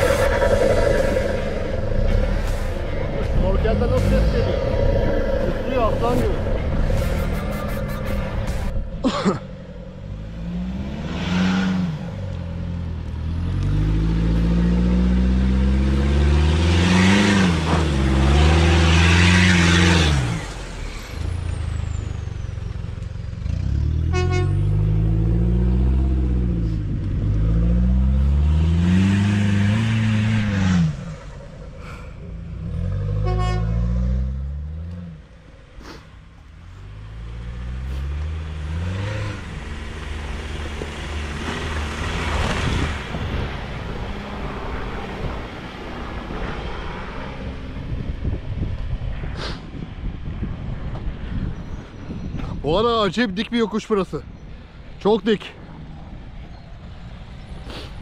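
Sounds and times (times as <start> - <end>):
truck engines revving: 0.0 - 58.0
horn toot: 24.0 - 24.8, 33.1 - 34.1.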